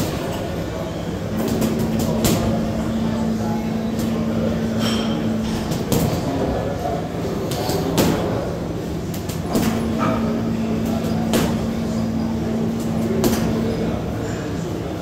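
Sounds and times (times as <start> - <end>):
faint voices: 0.0 - 15.0
steady low hum: 0.0 - 15.0
gym equipment knocks and clanks: 9.3 - 14.0.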